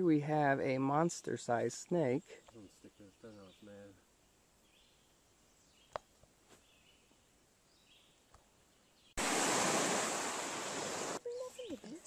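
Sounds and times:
lake waves breaking on a beach: 9.2s - 11.2s.

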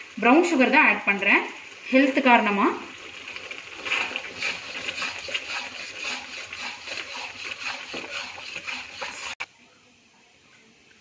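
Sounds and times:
sauce sizzling and crackling: 0.0s - 9.4s
metal spatula stirring in wok: 3.3s - 9.4s.

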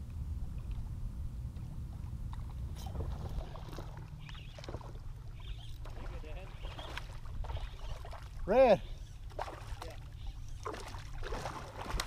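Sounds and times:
wind rumble on microphone: 0.0s - 4.3s
faint water sounds: 0.0s - 12.0s.

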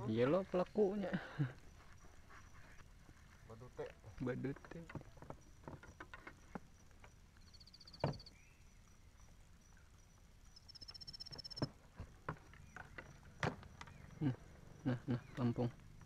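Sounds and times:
small ticks: 9.2s - 11.7s.

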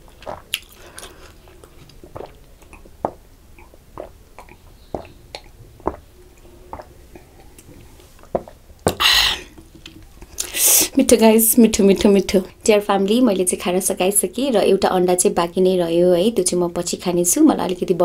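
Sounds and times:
person gulping: 0.0s - 10.8s
breathy exhale: 9.0s - 9.5s.

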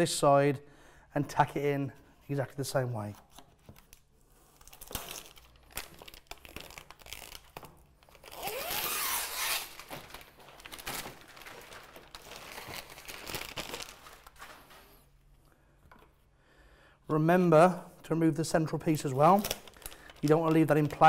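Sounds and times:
plastic backing crinkling: 3.0s - 15.2s, 19.0s - 21.0s.

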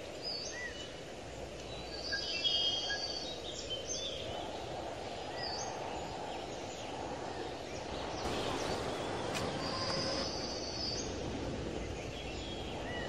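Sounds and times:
low rushing noise: 4.1s - 13.0s.

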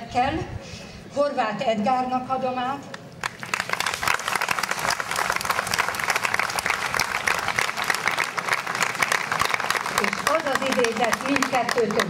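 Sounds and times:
crowd applauding: 3.2s - 12.0s.

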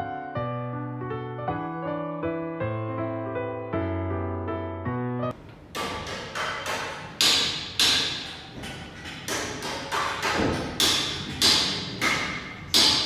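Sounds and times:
sharp knocks and metal clanks: 5.3s - 13.0s.

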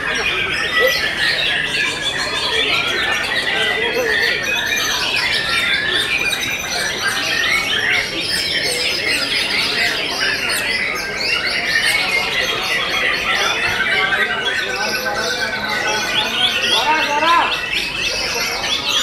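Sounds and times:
songbird chorus: 0.0s - 19.0s.

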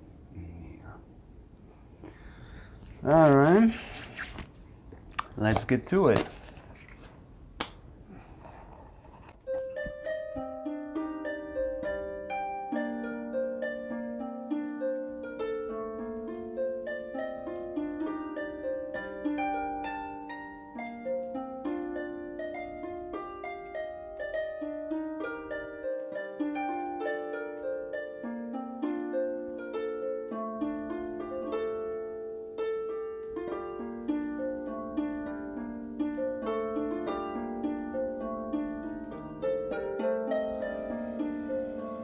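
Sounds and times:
plucked harp-like melody: 9.4s - 42.0s.

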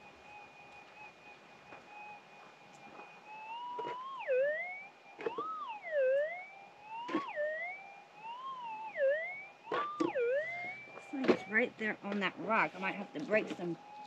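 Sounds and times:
metal detector warbling tone: 8.9s - 13.7s.

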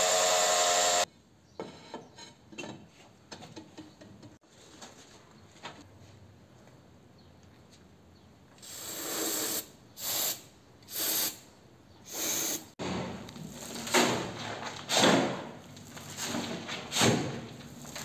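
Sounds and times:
aerosol spray can hissing: 8.6s - 11.4s.

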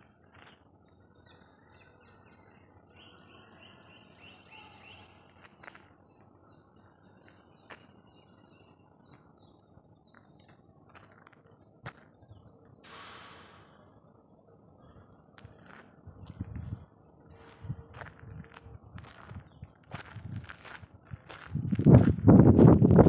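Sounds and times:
small birds chirping: 0.0s - 12.8s.

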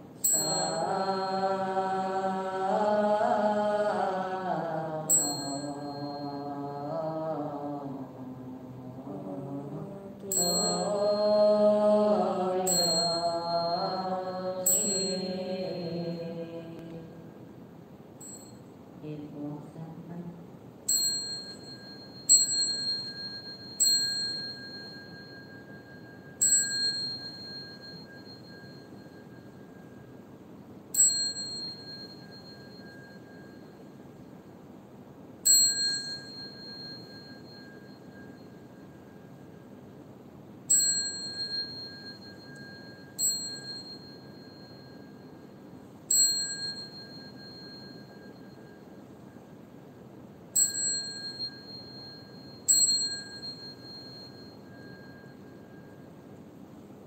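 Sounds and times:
small metal bell ringing: 0.0s - 1.7s, 5.1s - 6.6s, 10.2s - 12.0s, 12.6s - 16.4s, 18.2s - 18.8s, 20.9s - 34.8s, 35.4s - 57.0s.

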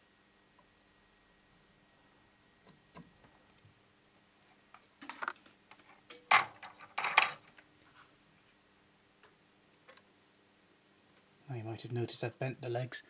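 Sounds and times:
low steady hum: 0.0s - 13.0s
small metal tools clattering: 5.0s - 7.5s.

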